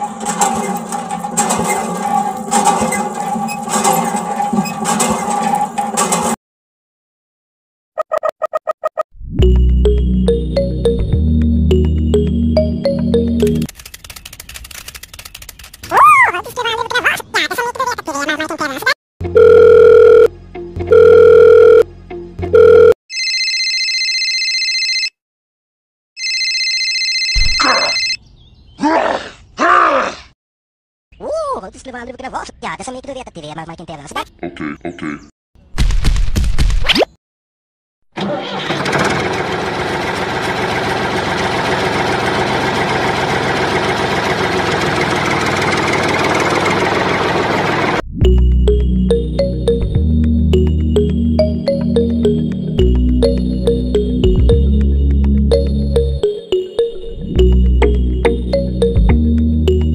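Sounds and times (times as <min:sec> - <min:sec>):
electronic phone ring trilling: 0:19.4 - 0:20.3, 0:20.9 - 0:21.8, 0:22.5 - 0:25.2, 0:26.2 - 0:28.2
long telephone beeps: 0:19.4 - 0:20.3, 0:20.9 - 0:21.8, 0:22.6 - 0:25.1, 0:26.2 - 0:28.2
diesel tractor engine idling: 0:38.2 - 0:48.0.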